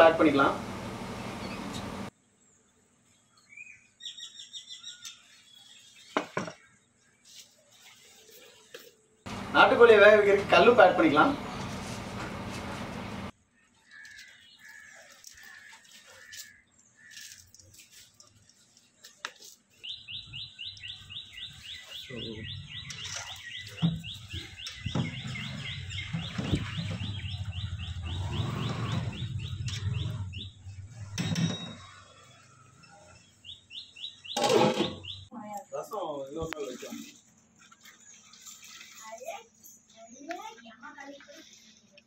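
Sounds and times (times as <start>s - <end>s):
bird chirping: 1.2s - 7.4s, 13.8s - 35.7s.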